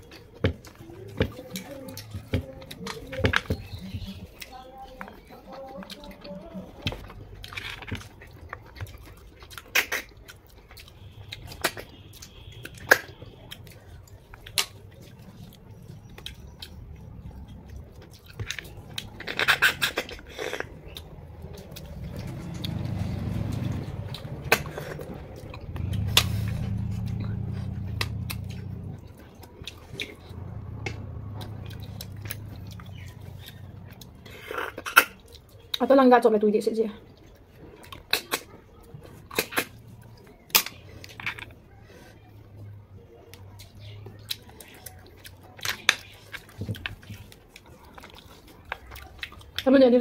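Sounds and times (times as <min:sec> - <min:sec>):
slurping and chewing snails: 0:00.0 - 0:35.9, 0:37.0 - 0:50.0
low steady hum: 0:12.0 - 0:37.8.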